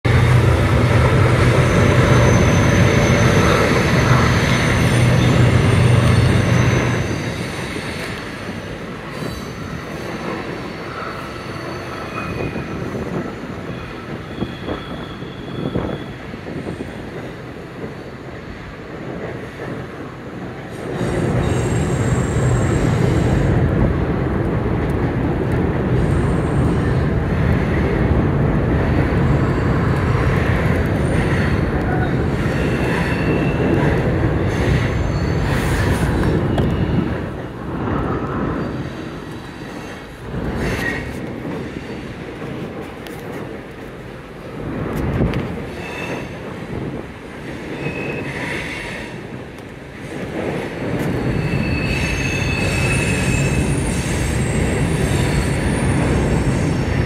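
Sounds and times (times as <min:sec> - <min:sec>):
freight train rumbling over bridge: 0:00.0 - 0:57.0
wheels squealing: 0:00.3 - 0:08.4.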